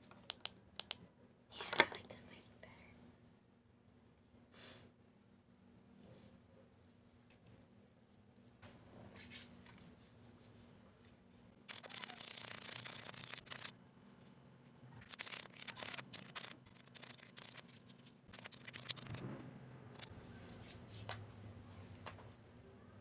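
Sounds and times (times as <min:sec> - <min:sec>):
hands rubbing face rustling: 0:11.7 - 0:13.7, 0:15.0 - 0:19.2.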